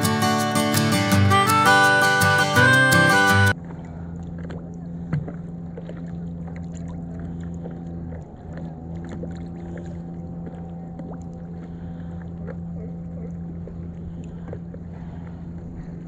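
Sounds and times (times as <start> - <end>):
guitar music: 0.0 - 3.6
steady low drone: 0.0 - 16.0
water lapping against paddle board: 3.5 - 16.0.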